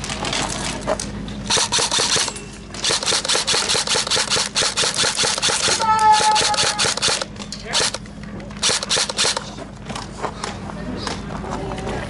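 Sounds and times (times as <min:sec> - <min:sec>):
airsoft guns firing rapid clicks: 0:01.5 - 0:08.0, 0:08.6 - 0:09.5.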